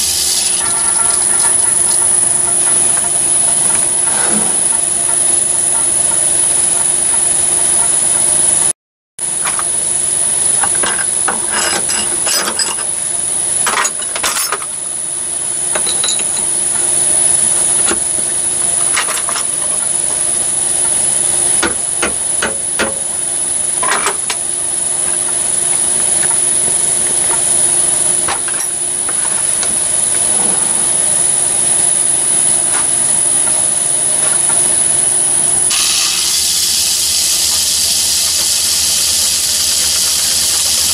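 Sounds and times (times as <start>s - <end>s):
steady hiss: 0.0s - 1.2s, 35.7s - 40.9s
thin high whine: 0.0s - 40.9s
metal tools clicking and knocking: 10.6s - 12.9s, 15.7s - 16.5s.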